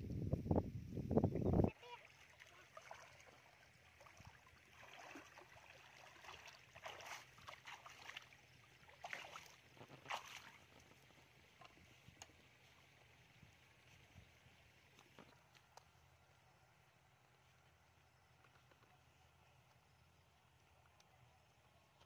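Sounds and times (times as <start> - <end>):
water splashing and sloshing: 1.7 - 16.2.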